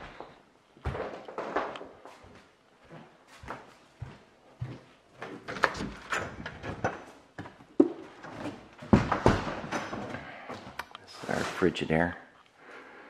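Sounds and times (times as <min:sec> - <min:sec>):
footsteps: 0:00.0 - 0:06.0.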